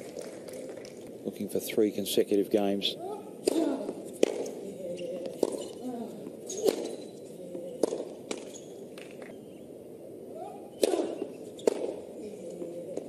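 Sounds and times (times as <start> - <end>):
tennis ball pops: 3.4 - 7.1, 7.7 - 9.4, 10.8 - 12.1.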